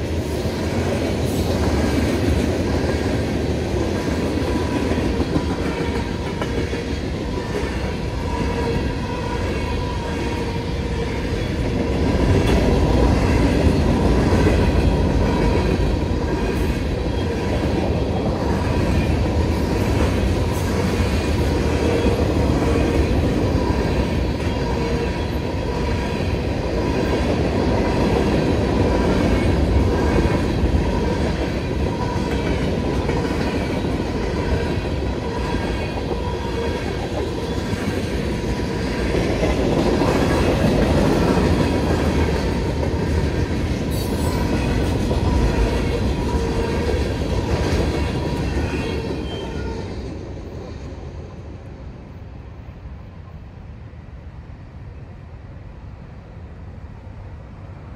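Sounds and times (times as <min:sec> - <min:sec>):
train wheels clacking over rails: 0:00.0 - 0:50.2
train wheels squealing: 0:48.0 - 0:50.0.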